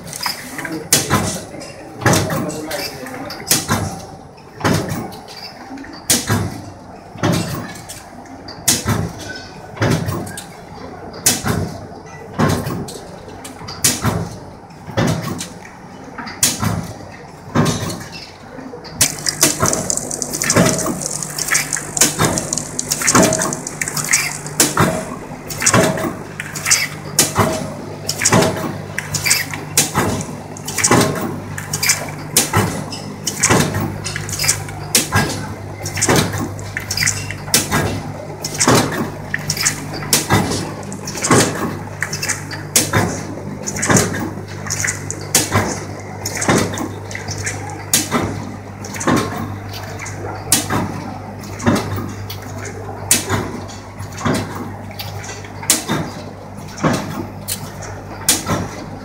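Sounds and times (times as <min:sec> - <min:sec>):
high hiss: 0:19.0 - 0:25.8
steady low hum: 0:19.0 - 0:48.8.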